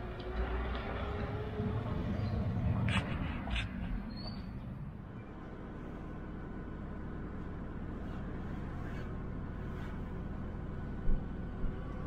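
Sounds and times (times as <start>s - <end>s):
car interior engine and road drone: 0.0s - 12.0s.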